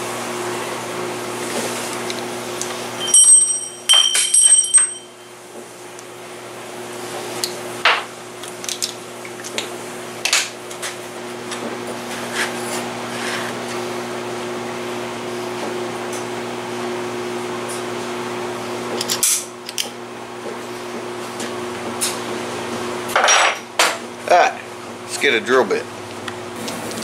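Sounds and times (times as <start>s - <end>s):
steel clinking against vise: 3.0s - 5.2s.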